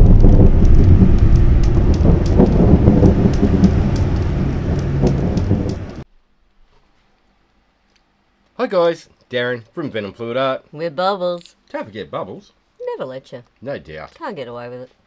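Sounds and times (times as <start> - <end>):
deep thunder rumble: 0.0 - 6.0
heavy rain: 0.0 - 6.0
thunder crackles: 0.0 - 6.0.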